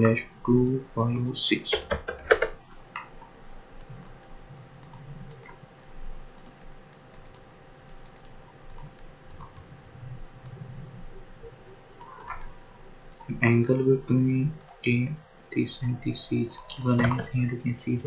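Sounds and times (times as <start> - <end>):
low steady hum: 0.0 - 18.0
computer mouse clicks: 1.7 - 5.6, 6.3 - 9.7, 10.4 - 10.8, 12.0 - 12.5, 13.1 - 13.4, 14.6 - 15.0.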